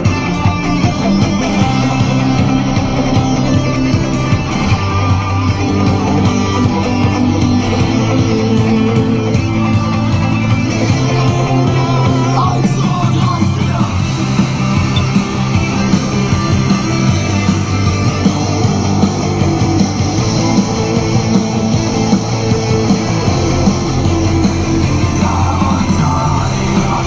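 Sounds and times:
electric guitar: 0:00.0 - 0:27.0
loud rock music: 0:00.0 - 0:27.0
person singing: 0:24.9 - 0:27.0.

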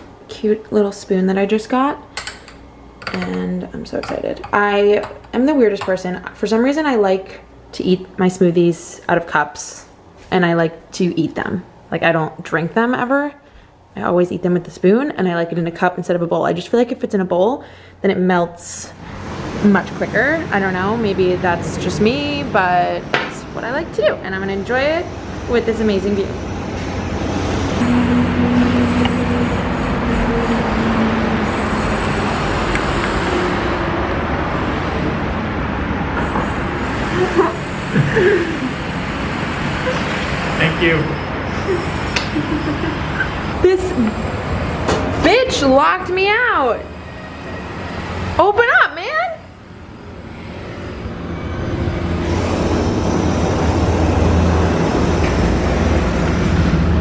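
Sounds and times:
road traffic noise: 0:18.8 - 0:57.0
low engine hum: 0:25.6 - 0:45.2.

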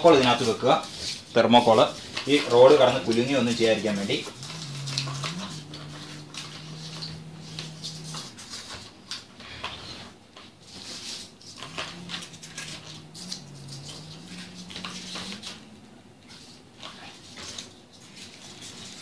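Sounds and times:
low steady hum: 0:03.0 - 0:09.1, 0:11.0 - 0:17.2.

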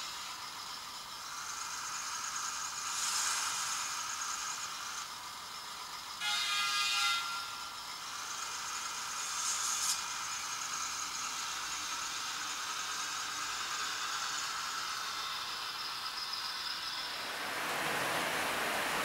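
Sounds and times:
small electric motor whirring: 0:00.0 - 0:17.4
loud rushing noise: 0:17.1 - 0:19.0.

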